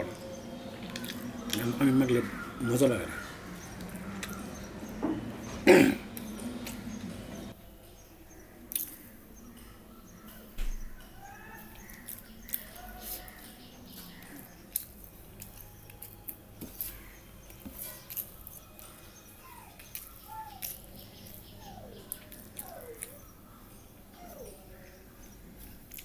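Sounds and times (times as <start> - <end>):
fingers squelching soft food: 3.1 - 5.0, 11.2 - 23.6
short squeaky calls: 19.0 - 24.7.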